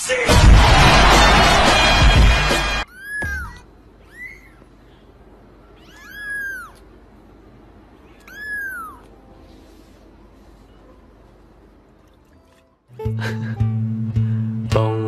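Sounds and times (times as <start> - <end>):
kitten meowing: 2.9 - 4.6, 5.7 - 6.8, 8.0 - 9.2.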